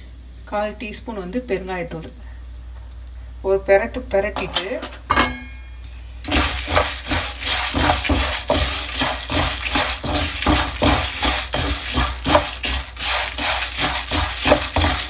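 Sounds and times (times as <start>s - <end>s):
spatula stirring lentils in pan: 6.2s - 15.0s.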